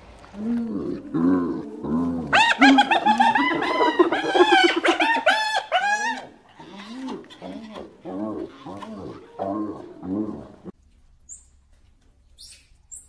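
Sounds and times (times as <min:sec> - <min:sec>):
hyena calling: 0:00.3 - 0:10.7.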